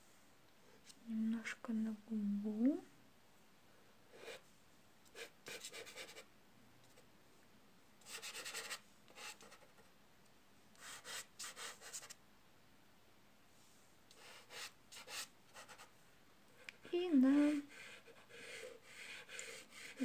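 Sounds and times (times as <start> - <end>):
pastel scratching on rough paper: 8.0 - 9.8.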